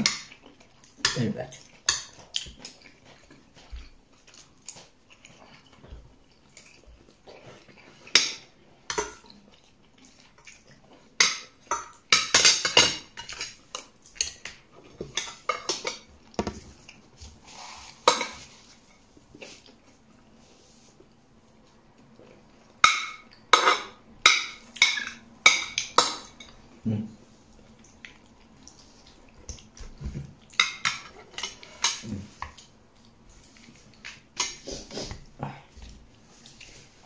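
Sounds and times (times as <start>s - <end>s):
cutlery clinking and scraping on plate: 30.5s - 32.6s.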